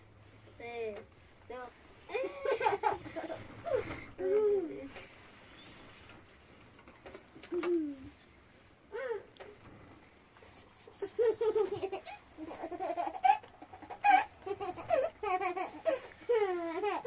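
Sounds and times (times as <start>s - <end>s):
toddler laughing and babbling: 10.9s - 17.0s.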